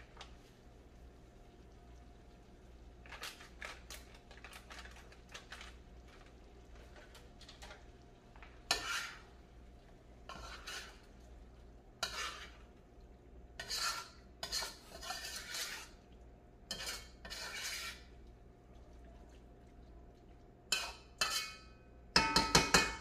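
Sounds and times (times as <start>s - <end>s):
spoon scraping metal pot: 8.6s - 9.3s, 10.3s - 11.1s, 12.0s - 12.7s, 13.6s - 16.0s, 16.7s - 18.1s, 20.7s - 21.7s
spoon clinking against pot: 20.7s - 23.0s.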